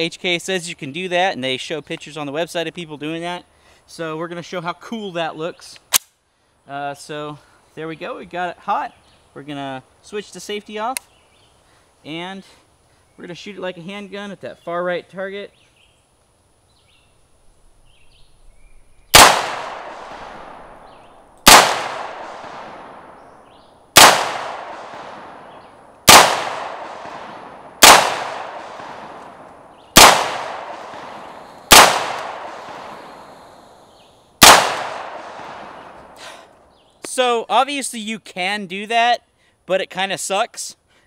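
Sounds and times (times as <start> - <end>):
pistol shots with echo: 19.1 - 23.2, 24.0 - 33.1, 34.4 - 36.0.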